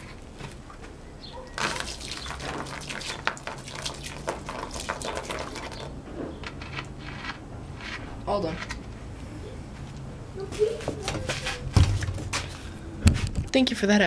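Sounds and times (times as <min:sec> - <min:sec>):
water splashing on ground: 0:01.6 - 0:06.0.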